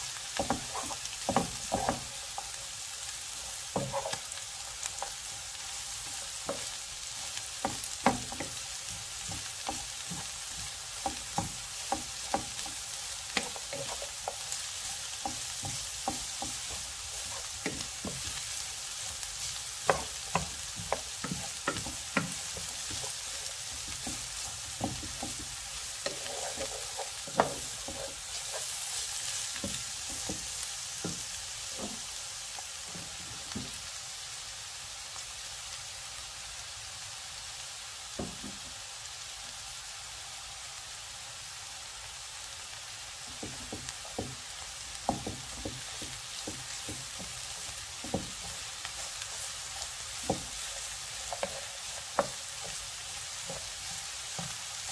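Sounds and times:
vegetables sizzling in a hot pan: 0:00.0 - 0:54.9
wooden spatula scraping pan: 0:00.4 - 0:02.5, 0:03.7 - 0:05.2, 0:07.6 - 0:32.0, 0:45.1 - 0:54.9.

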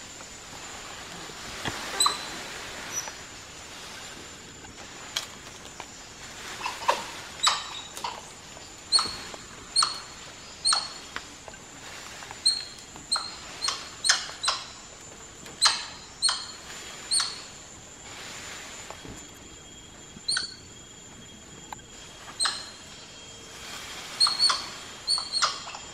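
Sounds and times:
monkeys high-pitched calls: 0:01.8 - 0:03.2, 0:06.4 - 0:11.1, 0:15.6 - 0:17.6, 0:22.3 - 0:22.8, 0:24.2 - 0:25.9.

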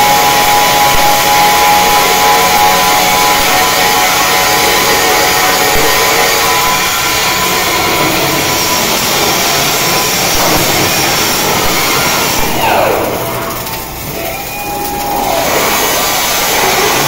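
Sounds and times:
welding arc sizzling: 0:00.0 - 0:17.0
short falling whine: 0:10.1 - 0:15.7.

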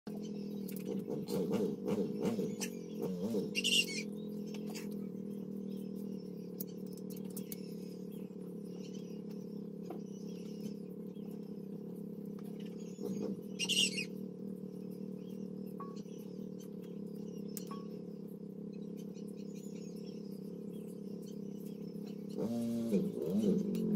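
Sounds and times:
low hum: 0:00.1 - 0:23.9
small birds chirping: 0:00.1 - 0:23.9
bird squawk: 0:01.1 - 0:05.0, 0:12.5 - 0:14.2.

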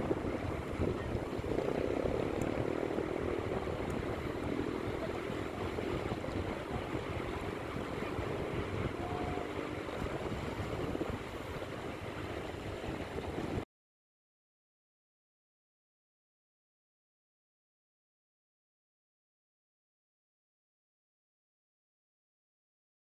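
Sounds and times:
small waves washing on sand: 0:00.0 - 0:13.6
wind rumble on microphone: 0:00.0 - 0:13.7.

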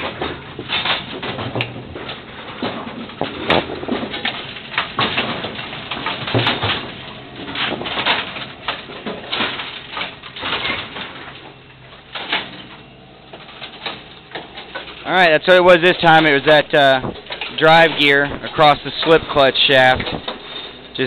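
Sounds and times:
mechanical clanks and knocks: 0:00.0 - 0:21.0
machinery din: 0:12.1 - 0:21.0.

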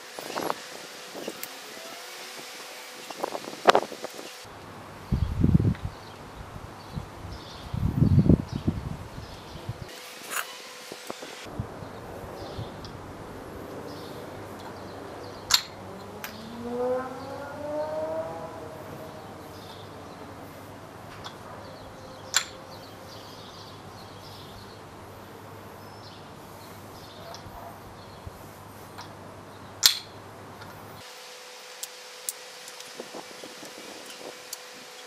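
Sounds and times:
outdoor background noise: 0:00.0 - 0:35.0
rising whine: 0:09.8 - 0:23.7
wooden toy ball clacking: 0:15.5 - 0:16.4, 0:22.3 - 0:22.6.

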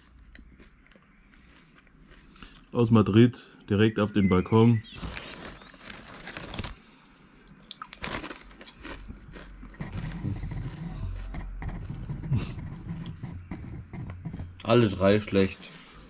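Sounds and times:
potato chips crunching and chewing: 0:00.0 - 0:02.8, 0:07.5 - 0:12.8.

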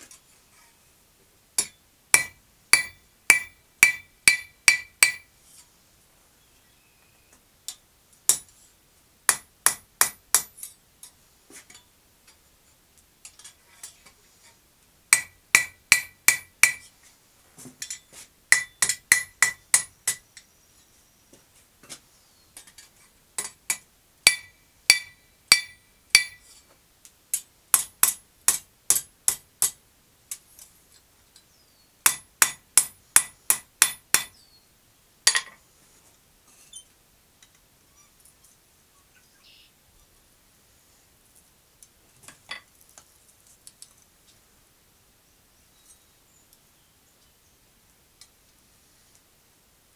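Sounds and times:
hammer striking steel on anvil: 0:01.6 - 0:05.3, 0:09.3 - 0:10.6, 0:15.1 - 0:16.9, 0:17.8 - 0:20.2, 0:23.4 - 0:26.4, 0:27.8 - 0:29.8, 0:32.1 - 0:34.3.

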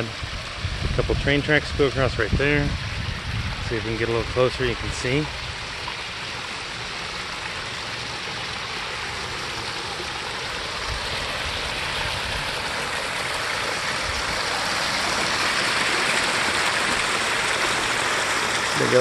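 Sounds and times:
waterfall splashing over rocks: 0:00.0 - 0:19.0.

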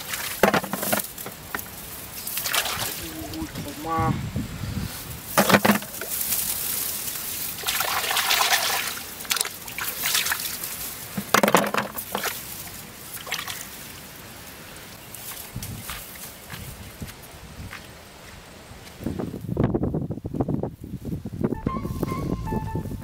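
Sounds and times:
water sloshing and splashing: 0:00.0 - 0:03.8, 0:05.3 - 0:14.2
knocks on metal basin: 0:00.4 - 0:01.1, 0:05.4 - 0:06.0, 0:11.2 - 0:12.1.

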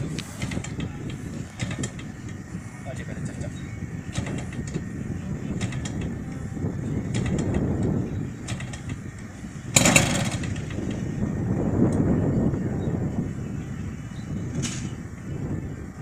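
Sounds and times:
propeller flip clicks: 0:00.0 - 0:02.4, 0:04.1 - 0:04.9, 0:05.5 - 0:11.2
steady low rumble: 0:00.0 - 0:16.0.

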